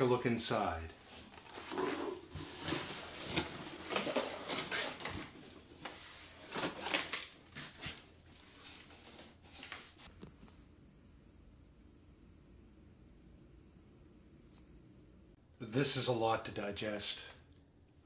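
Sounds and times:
cardboard scraping and rustling: 1.0s - 10.1s.

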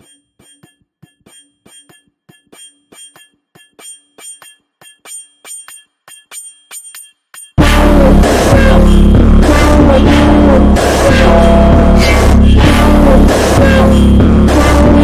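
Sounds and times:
bright bell-like dings: 0.0s - 7.6s
loud music: 7.6s - 15.0s.

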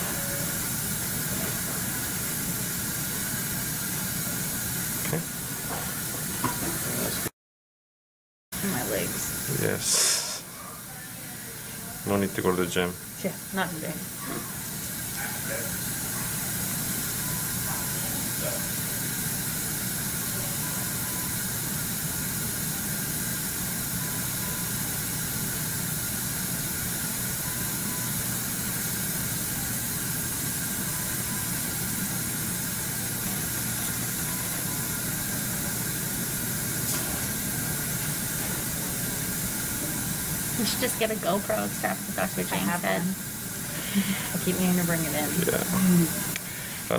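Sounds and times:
dental suction hissing: 8.7s - 10.6s, 12.0s - 46.9s.

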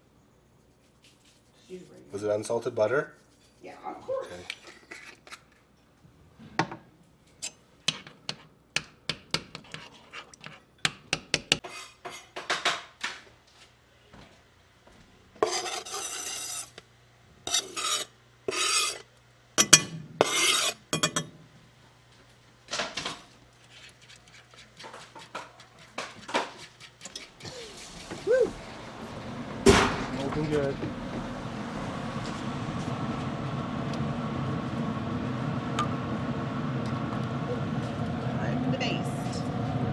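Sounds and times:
knife scraping cutting board: 9.5s - 10.6s, 11.6s - 12.3s, 15.4s - 16.8s, 17.5s - 19.1s, 20.2s - 20.8s, 23.6s - 28.0s
utensil clinking on metal saucepan: 19.6s - 21.3s.

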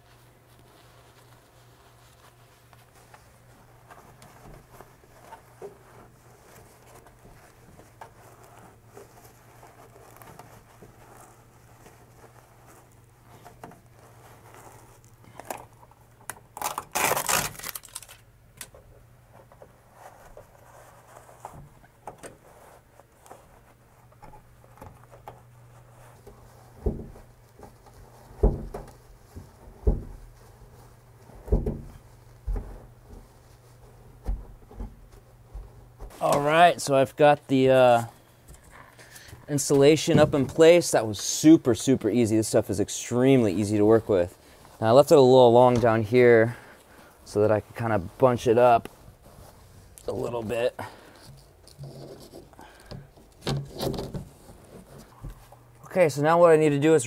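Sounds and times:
insulation rustling and crinkling: 0.0s - 57.0s
loud tape rip: 16.5s - 18.2s
dull thumps: 26.1s - 36.3s, 38.4s - 40.9s.

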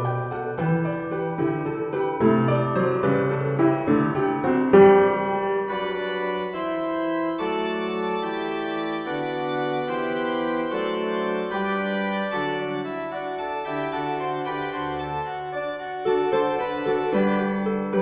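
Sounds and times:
slow organ-like keyboard chords: 5.7s - 15.9s.

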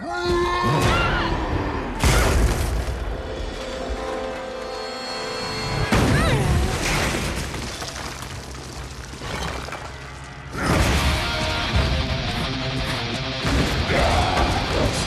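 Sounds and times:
film music: 0.7s - 7.5s, 9.8s - 15.0s
crashing debris: 5.9s - 12.2s.

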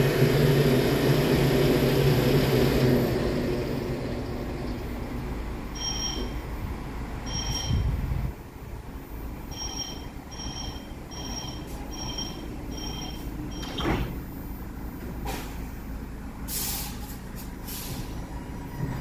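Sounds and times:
train door warning beeps: 5.7s - 6.6s, 7.2s - 8.0s, 9.4s - 14.3s
pneumatic air hiss: 16.5s - 18.2s.

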